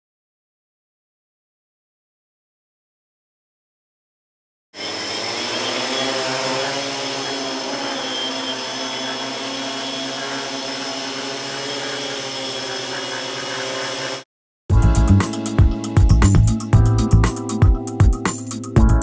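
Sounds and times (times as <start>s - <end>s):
drone propellers whirring: 4.8s - 14.2s.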